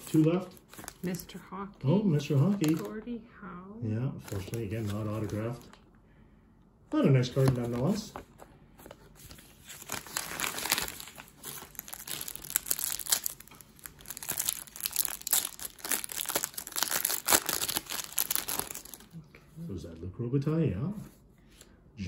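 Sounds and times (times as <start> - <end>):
card pack wrapper crinkling: 0.0 - 1.2, 2.2 - 3.0, 4.2 - 5.8, 9.2 - 19.1.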